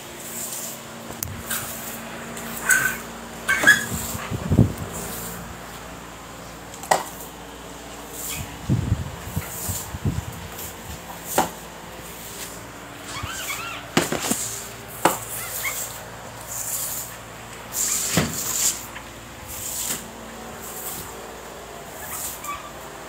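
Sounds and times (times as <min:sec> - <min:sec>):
short high squeaks: 0:01.4 - 0:04.3, 0:08.2 - 0:08.5, 0:12.4 - 0:18.8, 0:21.9 - 0:22.8.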